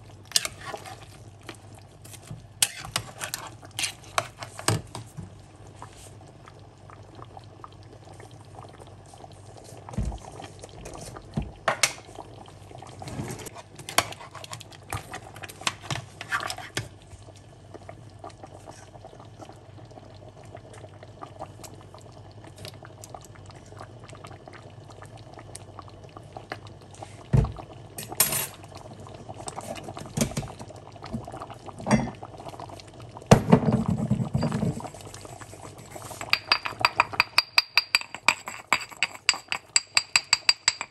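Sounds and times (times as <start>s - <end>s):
stew bubbling in pot: 0.0s - 40.9s
metal spoon scraping pot: 0.3s - 1.0s, 2.6s - 4.4s, 36.0s - 40.9s.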